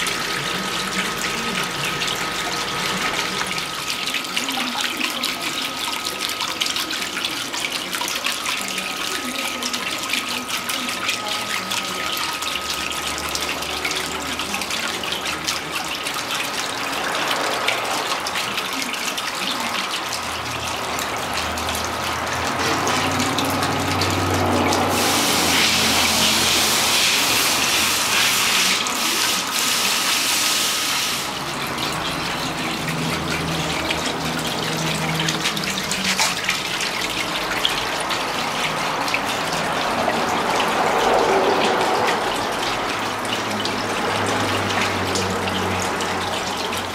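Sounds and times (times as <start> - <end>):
fountain water splashing into basin: 0.0 - 46.9.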